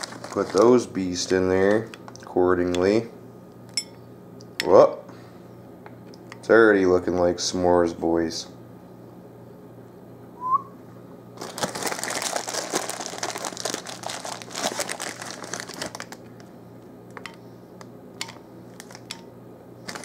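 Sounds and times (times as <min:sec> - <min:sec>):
plastic bag crinkling: 0:00.0 - 0:01.9, 0:11.4 - 0:16.3, 0:18.7 - 0:19.2.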